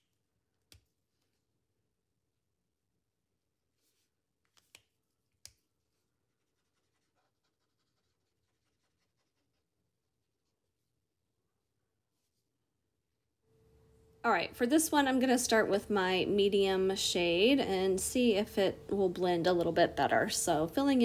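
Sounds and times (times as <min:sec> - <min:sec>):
marker strokes on paper: 0:03.7 - 0:10.9.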